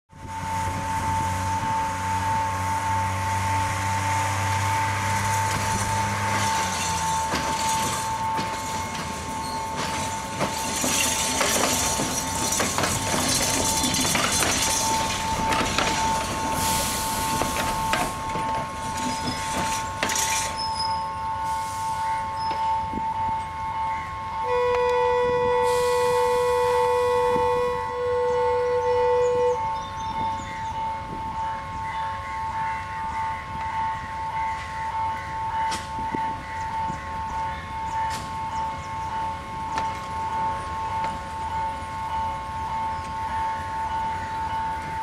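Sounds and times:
railbus engine humming: 0.1s - 45.0s
wheels clacking over rail joints: 3.8s - 21.0s.

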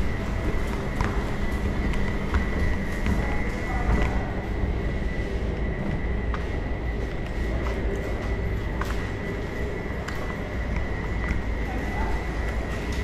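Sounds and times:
high-pitched whine: 0.0s - 13.0s.

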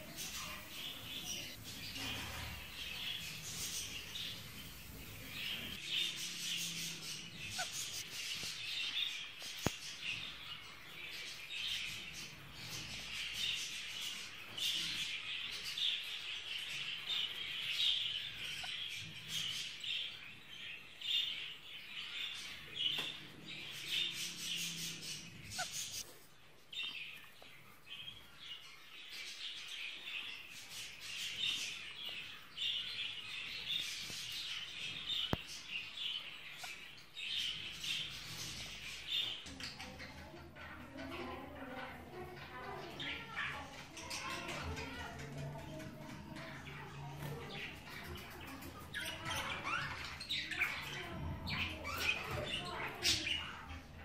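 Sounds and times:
budgerigars chirping: 0.0s - 26.0s, 28.0s - 40.6s.

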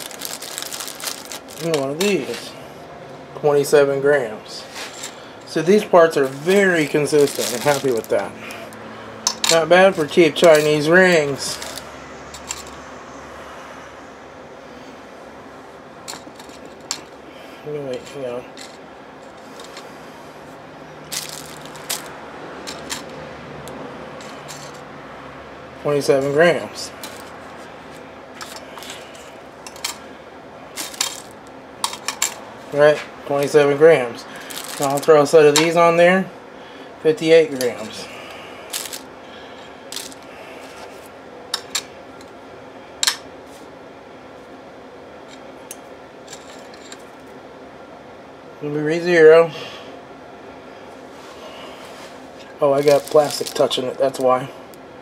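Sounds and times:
faint steady hum: 0.0s - 55.0s
metal engine parts clinking: 4.8s - 12.8s, 16.0s - 17.2s, 17.9s - 19.9s, 21.0s - 24.9s, 26.2s - 30.0s, 30.7s - 32.5s, 34.3s - 35.8s, 38.7s - 40.3s, 41.5s - 42.4s, 43.0s - 43.3s, 45.2s - 47.2s
metal piston rings clinking: 9.2s - 12.8s, 28.4s - 30.0s, 30.8s - 32.4s, 34.5s - 35.8s.

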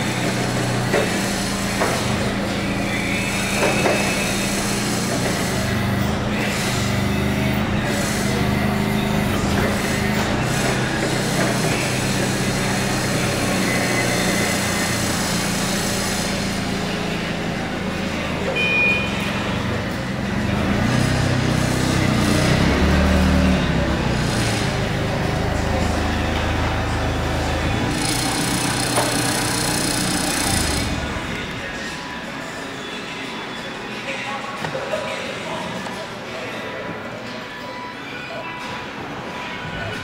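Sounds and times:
forklift engine revving: 0.0s - 31.9s
short high beep: 18.5s - 19.4s.

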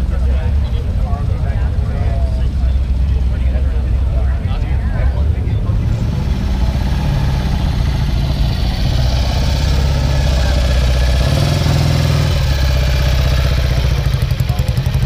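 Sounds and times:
motorcycle engine running: 5.1s - 15.0s.

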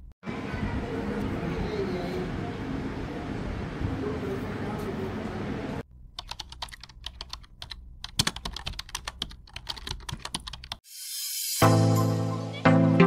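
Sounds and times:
keyboard key clicks: 6.2s - 10.8s
music with loud chords: 11.5s - 13.0s.

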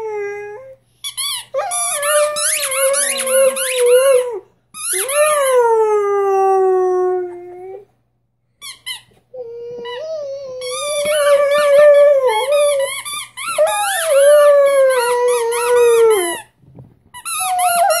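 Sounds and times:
puppy howling: 1.6s - 7.9s, 9.4s - 16.4s.

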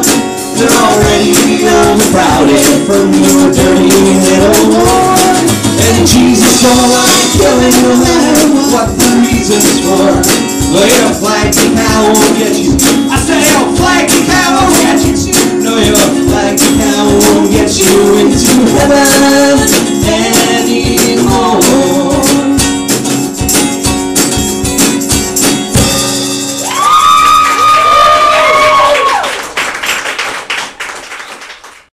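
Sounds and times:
sung vocals: 0.0s - 22.8s
strummed acoustic guitar: 0.0s - 26.6s
drums: 0.0s - 29.5s.

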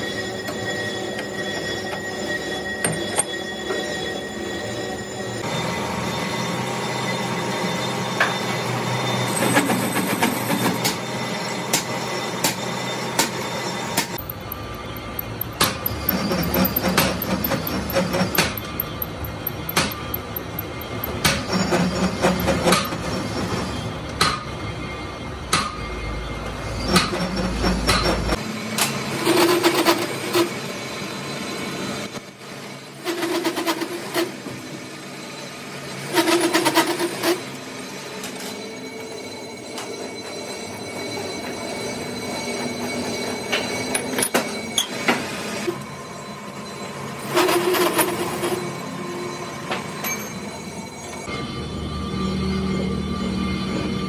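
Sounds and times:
metal clanks and strikes: 0.0s - 4.4s, 8.1s - 24.6s, 39.6s - 45.8s, 49.5s - 51.3s
scraping squeal: 0.0s - 54.0s
workshop machine hum: 0.0s - 54.0s.

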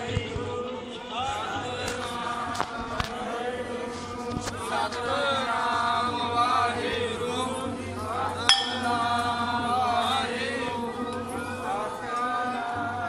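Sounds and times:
devotional chanting: 0.0s - 13.0s
sharp metallic clink: 8.5s - 9.0s.

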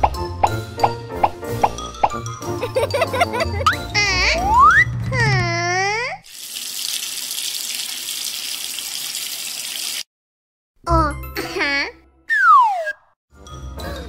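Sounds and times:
water running from a tap: 6.3s - 10.1s
whistling cartoon sound effects: 12.3s - 13.2s.

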